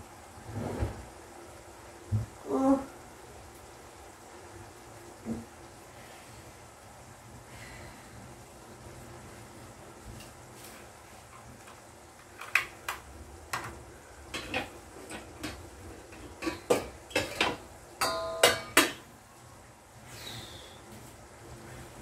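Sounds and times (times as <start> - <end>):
metal utensil clinking on a pot: 14.3 - 19.0.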